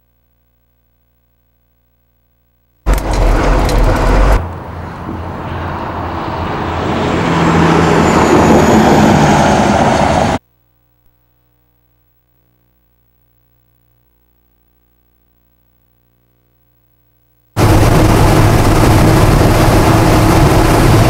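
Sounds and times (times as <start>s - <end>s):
highway traffic rushing past: 2.9s - 10.4s, 17.6s - 21.0s
vehicle passing with low drone: 2.9s - 10.4s, 17.6s - 21.0s.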